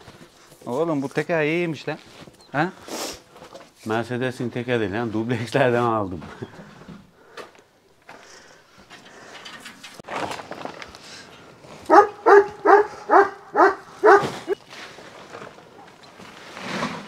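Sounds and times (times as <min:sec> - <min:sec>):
dog barking: 0:11.9 - 0:14.6.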